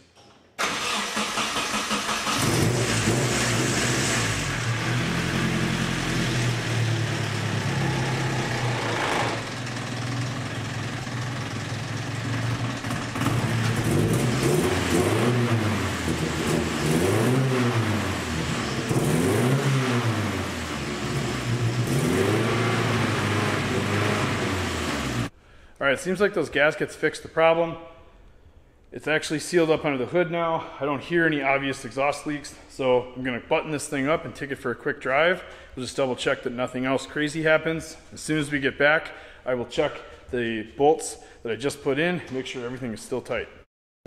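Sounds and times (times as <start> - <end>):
car engine idling and revving: 2.2 - 25.3.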